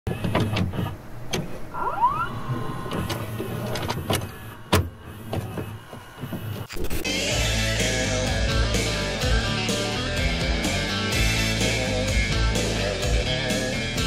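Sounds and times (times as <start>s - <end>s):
low hum: 1.6s - 13.3s
short rising whine: 1.7s - 10.5s.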